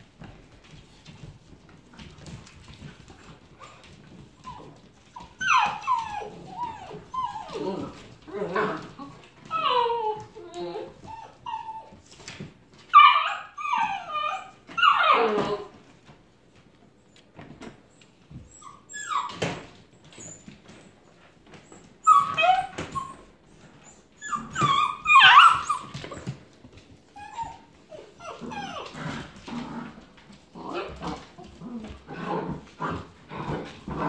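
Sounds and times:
paws scuffling on hardwood floor: 0.0s - 34.0s
puppies whining and yipping: 2.6s - 15.8s, 17.8s - 29.5s.

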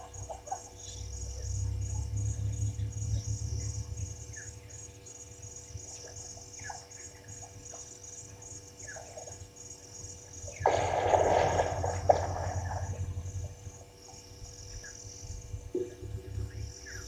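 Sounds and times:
high-pitched pulsing insect chorus: 0.0s - 17.0s
low rumble: 10.7s - 17.0s.

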